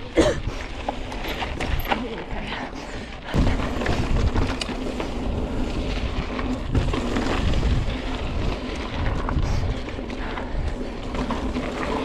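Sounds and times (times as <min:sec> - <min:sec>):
bike clicks: 0:00.0 - 0:12.0
mountain bike rumble and rattle: 0:00.0 - 0:12.0
wind buffeting microphone: 0:03.3 - 0:12.0.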